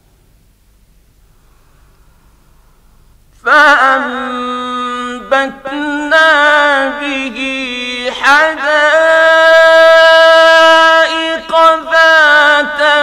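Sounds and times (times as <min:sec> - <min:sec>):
man reciting melodically: 0:03.4 - 0:13.0.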